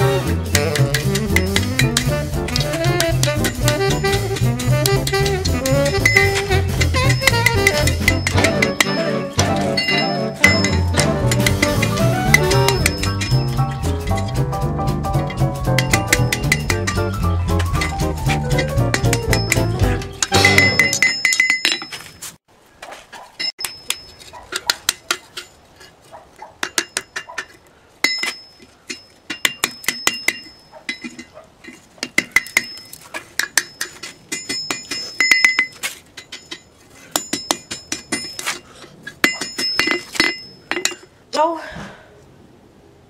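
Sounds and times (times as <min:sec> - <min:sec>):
music: 0:00.0 - 0:21.1
hammer ringing on anvil: 0:09.8 - 0:11.5, 0:20.3 - 0:21.8.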